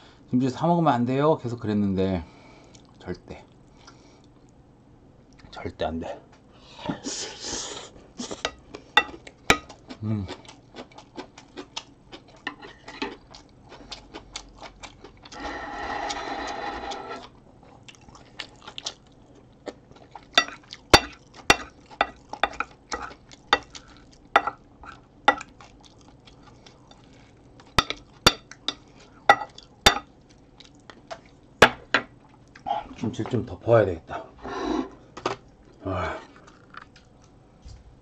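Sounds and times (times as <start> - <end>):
chewing: 2.6 - 4.6, 8.2 - 15.4, 17.2 - 31.5, 32.2 - 32.8, 35.4 - 37.4
wooden spoon scraping ceramic plate: 15.4 - 17.3, 34.4 - 35.0.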